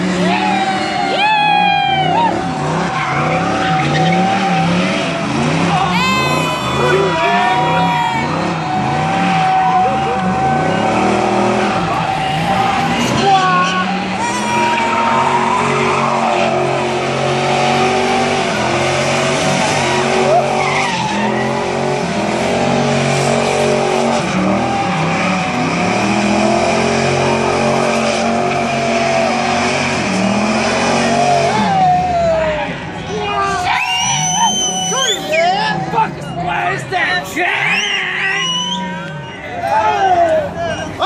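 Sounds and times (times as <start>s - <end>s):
tyres squealing: 0.2s - 32.2s, 33.0s - 41.0s
truck diesel engine revving: 1.9s - 33.2s.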